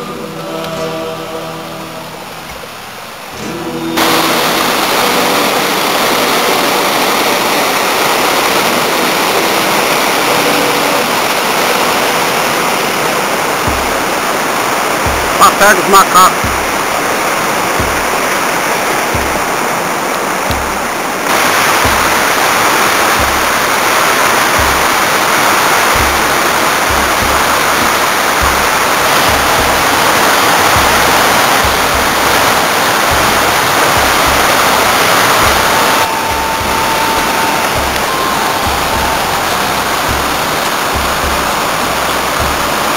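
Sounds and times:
waterfall roaring: 0:00.0 - 0:42.9
low thumps: 0:13.0 - 0:42.9.

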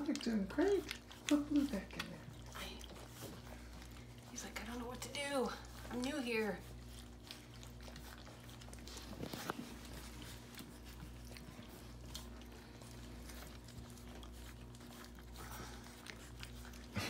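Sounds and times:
small wet clicks: 0:00.0 - 0:16.7
puppies lapping from metal saucer: 0:00.0 - 0:17.0.

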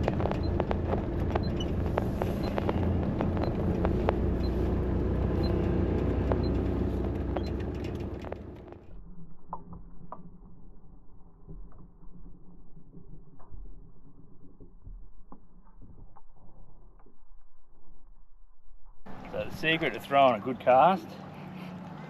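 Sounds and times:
faint high ticking: 0:00.0 - 0:08.8
vehicle cabin rumble: 0:00.0 - 0:09.0
rattles and clicks: 0:00.0 - 0:10.6.

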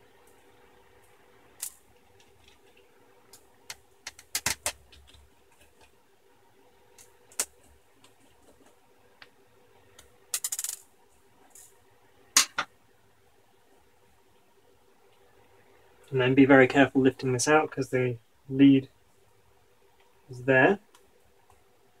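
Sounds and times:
faint steady hum: 0:00.0 - 0:22.0
tools and screws clicking on desk: 0:10.4 - 0:10.8.

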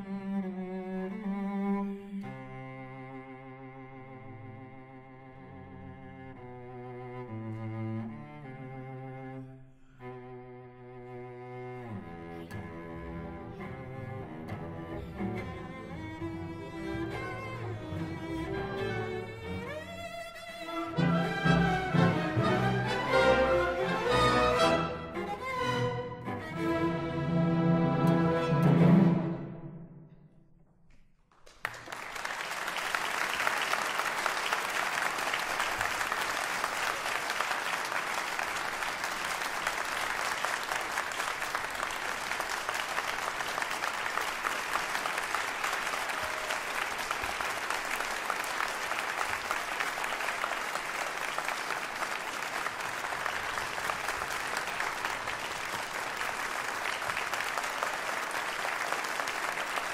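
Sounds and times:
audience applause: 0:20.7 - 0:26.0, 0:31.3 - 0:59.9.

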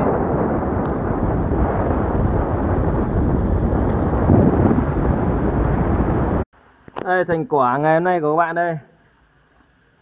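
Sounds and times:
wind buffeting microphone: 0:00.0 - 0:06.5.

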